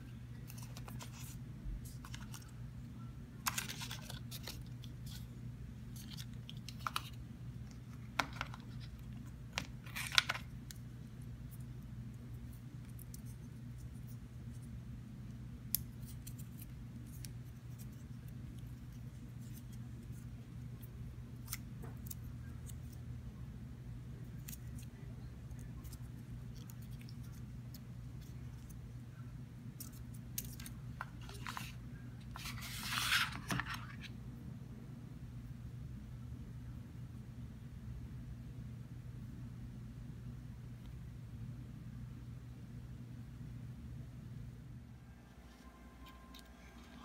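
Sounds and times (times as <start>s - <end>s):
steady low hum: 0.0s - 47.0s
rustling scrape of cardboard: 32.4s - 34.1s.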